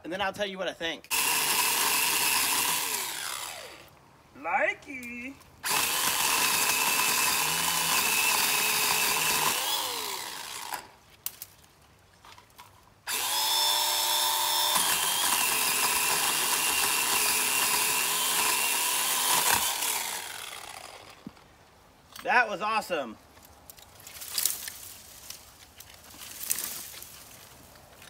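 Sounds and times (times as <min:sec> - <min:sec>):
electric pole saw whining: 0:01.1 - 0:03.9, 0:05.6 - 0:11.0, 0:13.1 - 0:21.4.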